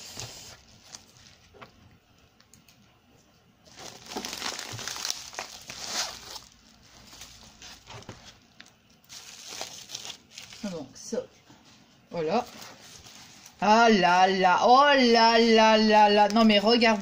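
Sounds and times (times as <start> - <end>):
plastic packaging crinkling: 0.1 - 1.8, 3.6 - 11.0.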